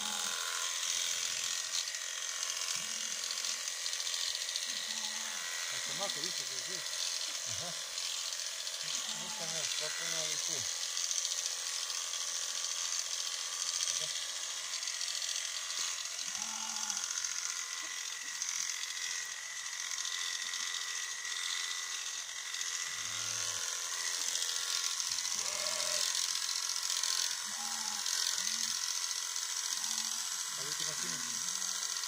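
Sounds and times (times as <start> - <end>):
electric clippers buzzing: 0.0 - 32.0.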